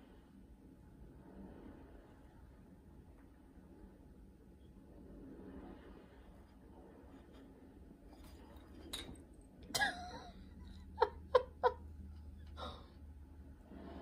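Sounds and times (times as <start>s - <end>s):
person laughing softly: 9.7s - 13.0s.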